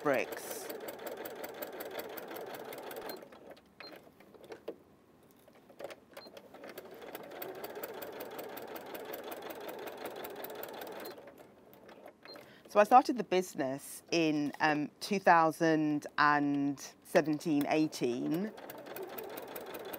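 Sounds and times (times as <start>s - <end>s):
sewing machine stitching: 0.0s - 4.7s, 5.8s - 12.4s, 17.5s - 19.9s.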